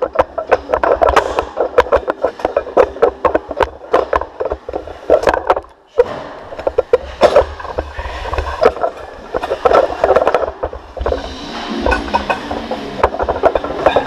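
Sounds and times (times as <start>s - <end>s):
low rumble: 7.1s - 14.0s.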